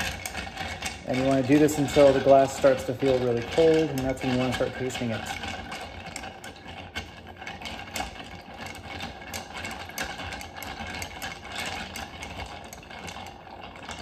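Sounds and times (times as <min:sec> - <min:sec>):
bar spoon stirring ice in glass: 0:00.0 - 0:14.0.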